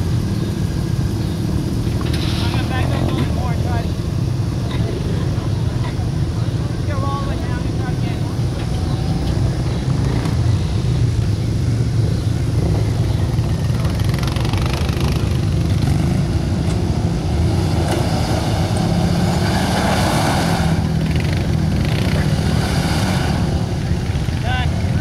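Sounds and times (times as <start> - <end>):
pickup engine running under load: 0.0 - 25.0.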